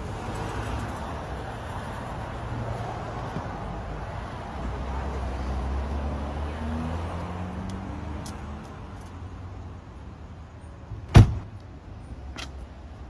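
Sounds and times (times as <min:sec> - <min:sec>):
low street rumble: 0:00.0 - 0:13.0
car door slamming: 0:10.9 - 0:11.5.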